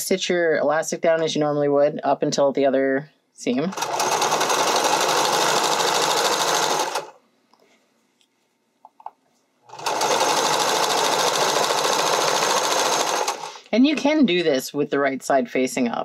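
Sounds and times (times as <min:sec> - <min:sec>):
sewing machine stitching: 0:03.7 - 0:07.2, 0:09.7 - 0:13.7.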